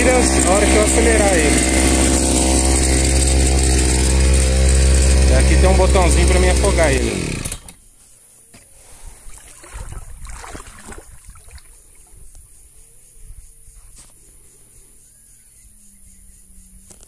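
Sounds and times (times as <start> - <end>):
water lapping against kayak hull: 8.7 - 12.4.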